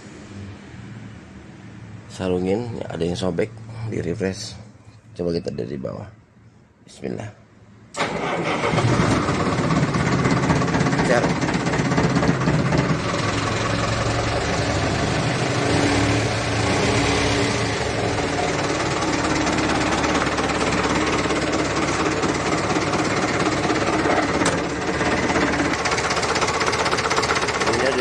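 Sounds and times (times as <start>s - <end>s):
diesel truck engine idling: 8.2s - 28.0s.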